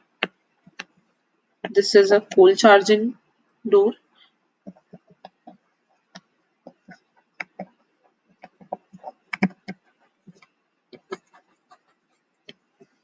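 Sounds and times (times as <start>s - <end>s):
stylus tapping on touchscreen: 4.7s - 7.8s, 8.4s - 11.9s.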